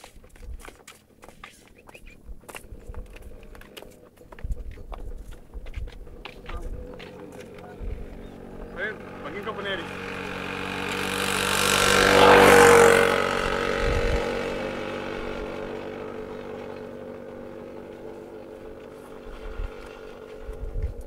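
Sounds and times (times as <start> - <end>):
passing vehicle engine: 5.4 - 21.0.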